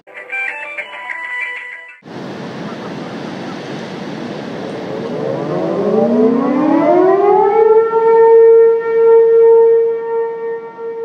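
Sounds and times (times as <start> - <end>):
warning siren winding up: 4.9 - 11.0.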